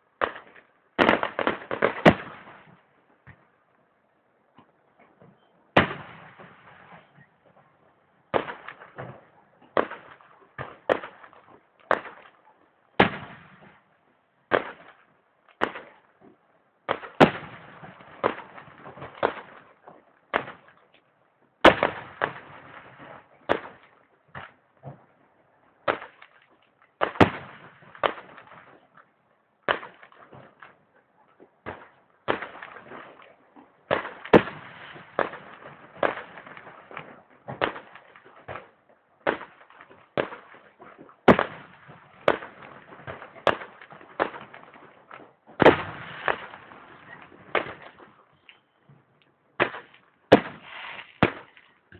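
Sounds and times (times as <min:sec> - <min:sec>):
fireworks bangs: 0:00.2 - 0:02.8, 0:05.7 - 0:07.6, 0:08.3 - 0:12.4, 0:13.0 - 0:13.8, 0:16.8 - 0:20.7, 0:21.6 - 0:25.0, 0:27.0 - 0:28.8, 0:31.6 - 0:51.9.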